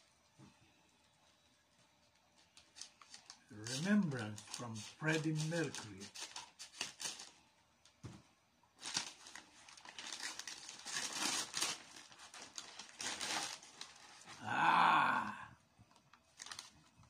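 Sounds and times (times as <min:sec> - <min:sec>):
packaging crinkling and rustling: 0:01.7 - 0:08.0, 0:08.8 - 0:14.4, 0:15.9 - 0:17.0.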